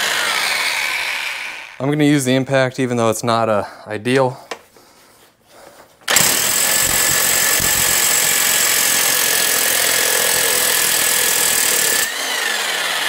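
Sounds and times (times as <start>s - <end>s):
impact wrench hammering: 6.1s - 12.2s.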